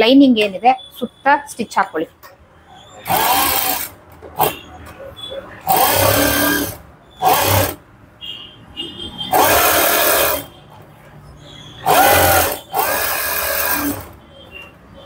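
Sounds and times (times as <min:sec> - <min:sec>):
electric sewing machine running: 0:03.1 - 0:04.6, 0:05.7 - 0:07.8, 0:09.3 - 0:10.5, 0:11.8 - 0:14.2.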